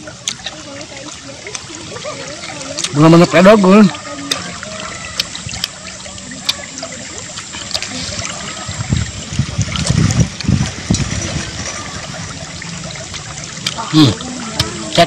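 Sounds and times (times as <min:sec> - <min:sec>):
running water trickling: 0:00.0 - 0:15.0.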